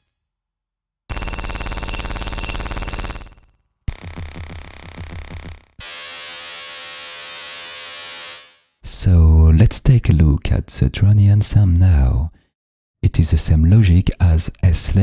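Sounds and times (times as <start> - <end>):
dense electrical buzz: 1.1 - 8.8.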